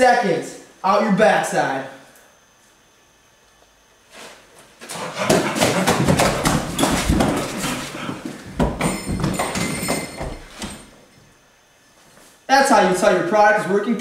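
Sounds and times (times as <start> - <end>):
scuffing footsteps: 4.8 - 11.3.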